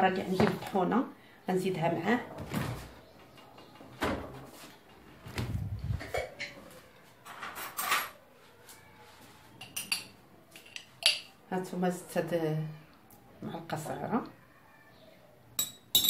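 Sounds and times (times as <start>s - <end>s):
metal spoon clinking on containers: 9.6s - 11.3s, 15.6s - 16.0s.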